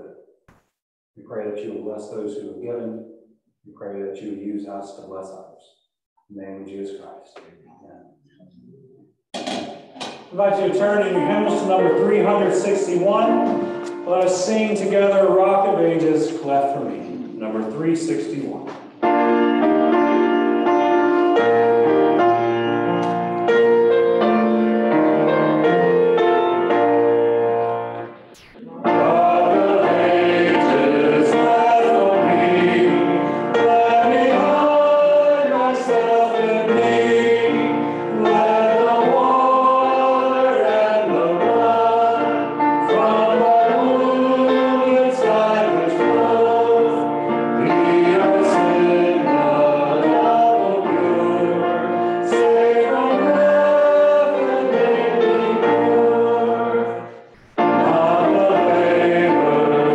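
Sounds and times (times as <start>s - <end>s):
keyboard accompaniment: 10.4s - 59.9s
congregation singing a hymn: 10.5s - 18.6s, 28.7s - 59.9s.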